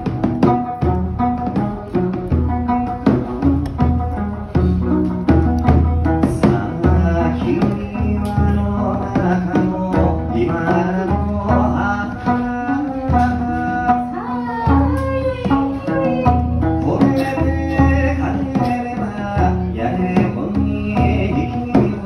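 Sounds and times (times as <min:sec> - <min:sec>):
plucked lute: 0:00.0 - 0:22.0
small drum beaten with sticks: 0:00.0 - 0:22.0
woman singing: 0:10.4 - 0:22.0.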